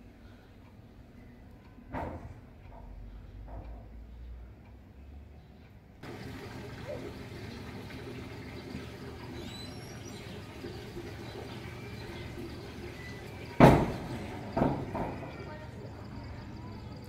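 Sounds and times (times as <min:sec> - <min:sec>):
outdoor background noise: 0:00.0 - 0:17.0
faint high bird chirps: 0:08.9 - 0:17.0.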